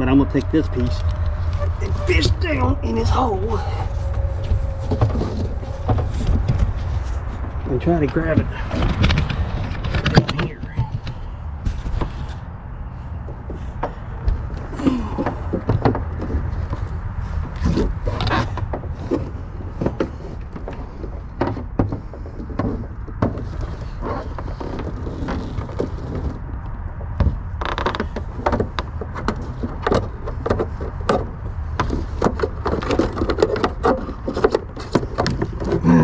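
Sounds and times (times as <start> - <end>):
steady low rumble: 0.0 - 24.0.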